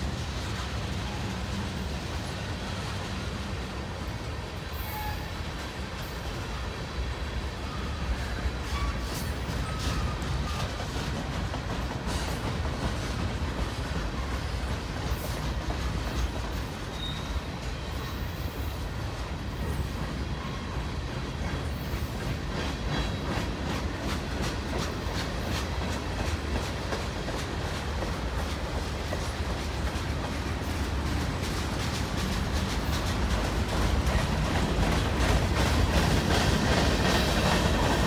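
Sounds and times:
clickety-clack over rail joints: 0.0 - 38.0
train wheels rumbling on rails: 0.0 - 38.0
faint wheel squeals: 16.9 - 18.7.

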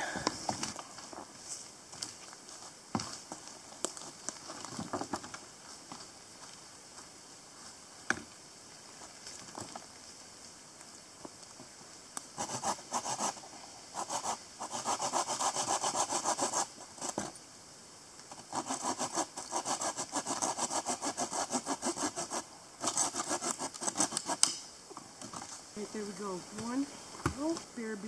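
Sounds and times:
hand saw cutting wood: 12.4 - 13.4, 14.0 - 17.2, 18.3 - 24.6.

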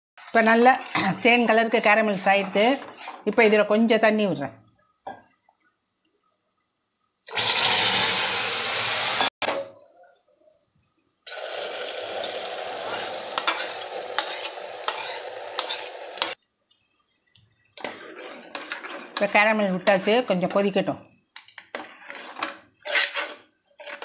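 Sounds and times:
low steady sizzle: 0.2 - 7.3, 9.6 - 24.0
water hissing in hot caramel: 11.2 - 19.5.

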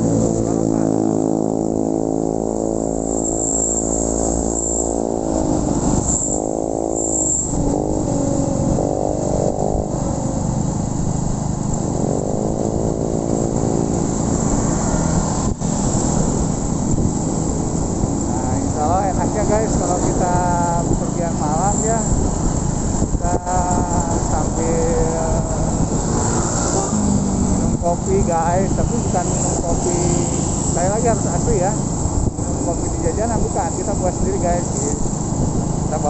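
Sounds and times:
motorcycle engine revving: 0.0 - 36.0.

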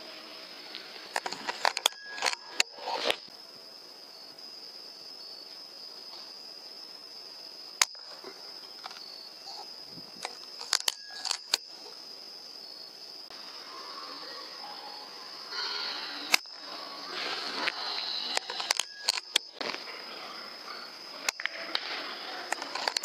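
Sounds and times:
crickets chirring: 0.0 - 23.0
sharp clicks: 1.1 - 3.2, 10.2 - 11.7, 16.3 - 16.6, 18.2 - 19.8.

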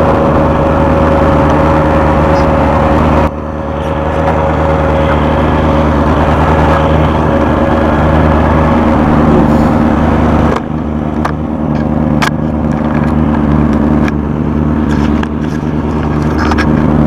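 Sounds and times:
motorcycle engine idling: 0.0 - 17.0.

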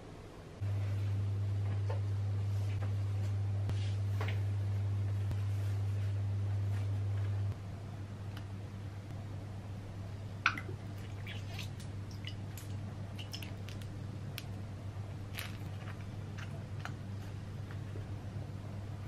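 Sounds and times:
steady low hum: 0.0 - 19.0
bottles squelching: 10.4 - 13.8.

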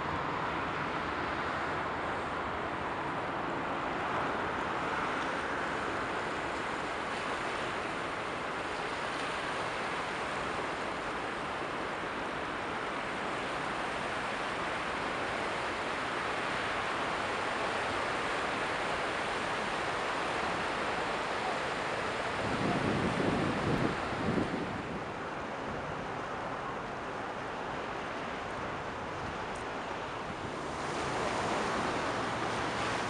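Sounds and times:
rushing water: 0.0 - 33.0
wind noise: 22.1 - 26.2.

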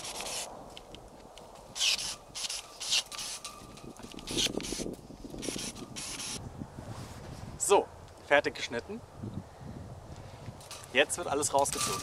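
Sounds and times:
pruning shears snipping: 0.0 - 6.4.

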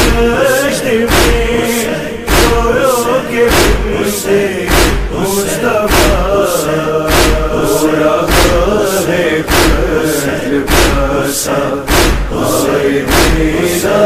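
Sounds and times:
heavy beat: 0.0 - 2.9, 3.5 - 4.0, 4.7 - 13.8
group chanting in unison: 0.0 - 14.0.

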